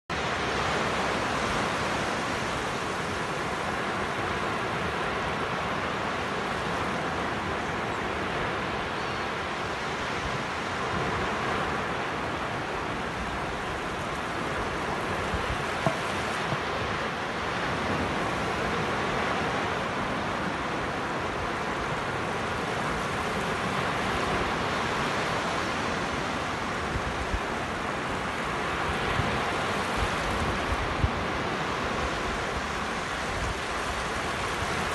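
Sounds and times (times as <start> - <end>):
surf breaking on a beach: 0.1 - 34.9
wind buffeting microphone: 12.4 - 18.8.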